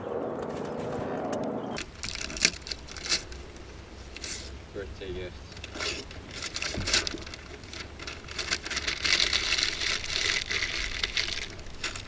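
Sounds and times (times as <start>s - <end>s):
wrapping paper tearing and crumpling: 5.7s - 12.0s.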